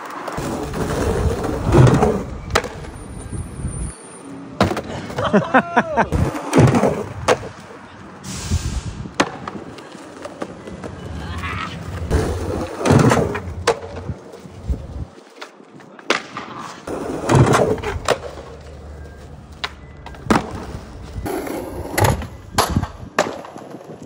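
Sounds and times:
skateboard popping and landing: 0:00.0 - 0:02.9, 0:04.6 - 0:05.3, 0:06.2 - 0:07.7, 0:09.1 - 0:14.3, 0:15.4 - 0:18.6, 0:19.6 - 0:24.0
skateboard wheels rolling on concrete: 0:00.0 - 0:24.0.

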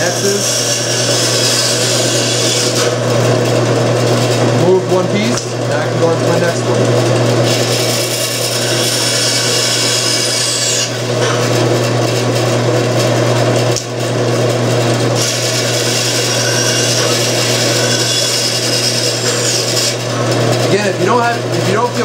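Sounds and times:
saw blade cutting wood: 0:00.0 - 0:03.1, 0:07.4 - 0:12.2, 0:15.1 - 0:22.0
bandsaw motor hum: 0:00.0 - 0:22.0.

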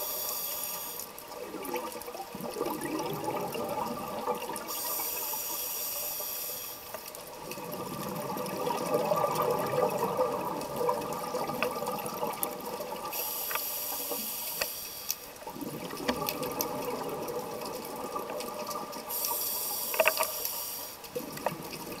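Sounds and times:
hissing inhale through regulator: 0:00.0 - 0:01.2, 0:04.6 - 0:07.1, 0:13.1 - 0:15.4, 0:19.0 - 0:21.2
bubbling exhaust underwater: 0:01.1 - 0:05.4, 0:07.3 - 0:13.2, 0:15.4 - 0:20.3, 0:21.0 - 0:22.0.

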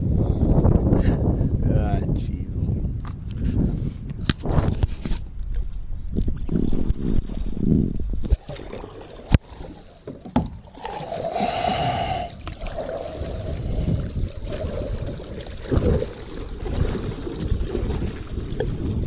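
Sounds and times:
water splashing around kayak: 0:04.2 - 0:19.0.

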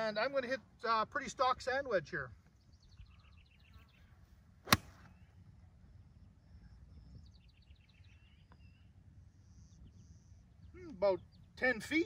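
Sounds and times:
birds chirping: 0:00.0 - 0:12.0
golf club striking ball: 0:04.7 - 0:05.1.

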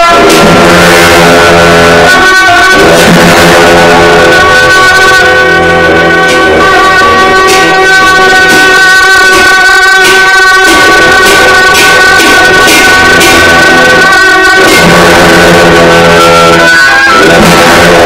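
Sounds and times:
percussive beat: 0:00.0 - 0:18.0
sustained melodic tones: 0:00.0 - 0:18.0.

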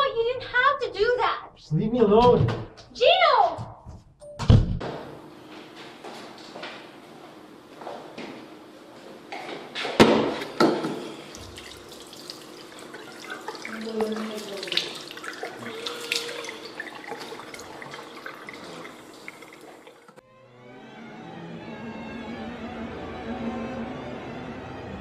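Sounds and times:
water splashing into a sink: 0:10.4 - 0:20.2
small drips and knocks: 0:10.5 - 0:20.2.

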